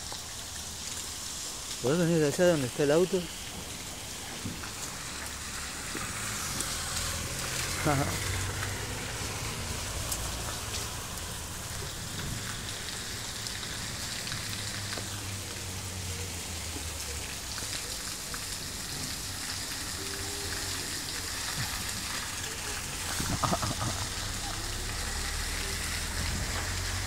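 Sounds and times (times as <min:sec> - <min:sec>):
steady rain falling: 0:00.0 - 0:27.0.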